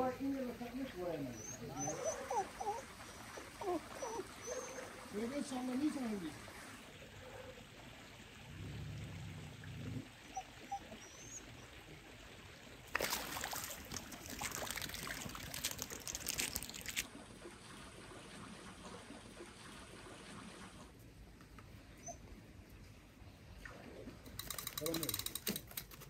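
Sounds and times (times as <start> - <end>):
water splashing in pond: 7.8 - 20.9.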